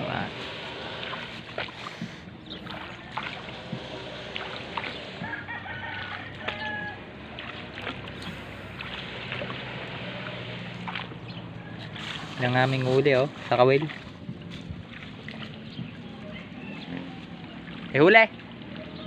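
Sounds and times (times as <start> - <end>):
rooster crowing: 5.2 - 7.1.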